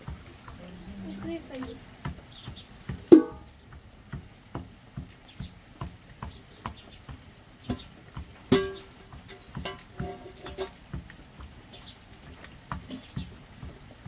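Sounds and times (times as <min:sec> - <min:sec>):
pestle pounding in steel mug: 0:02.1 - 0:03.5, 0:04.1 - 0:11.6
metal pot lid clanging: 0:03.1 - 0:03.5, 0:08.5 - 0:10.8.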